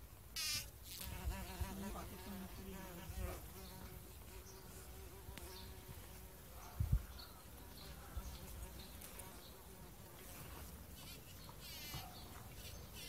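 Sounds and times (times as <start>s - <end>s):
bumblebee buzzing: 0.4s - 6.4s.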